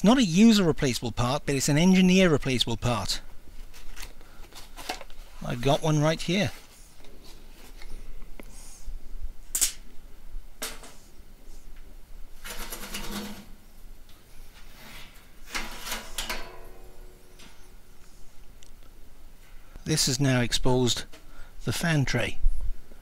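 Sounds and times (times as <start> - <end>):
sheet metal scraping and rattling: 12.4 - 13.6, 14.7 - 17.6
metallic ring: 16.1 - 17.7.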